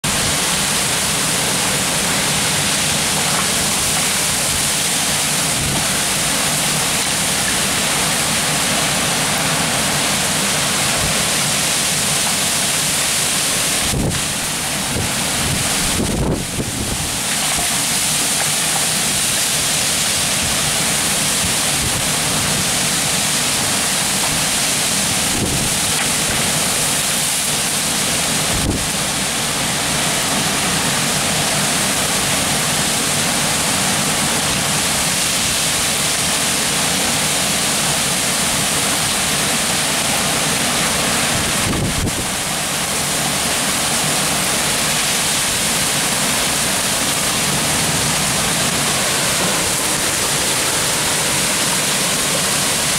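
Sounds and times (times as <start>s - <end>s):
torrential rain and wind: 0.0s - 52.9s
wind buffeting microphone: 13.8s - 17.7s, 25.2s - 26.4s, 41.3s - 42.4s.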